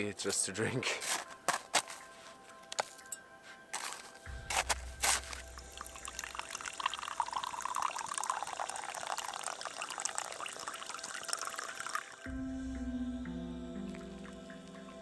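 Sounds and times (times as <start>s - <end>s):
hot water pouring into mug: 5.2s - 12.3s.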